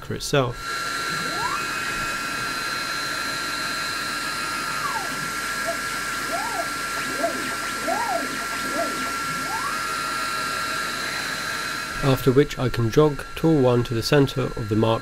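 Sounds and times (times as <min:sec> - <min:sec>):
steady high whine: 0:00.4 - 0:15.0
stepper motors whining: 0:00.6 - 0:15.0
fan-like hiss: 0:10.0 - 0:15.0.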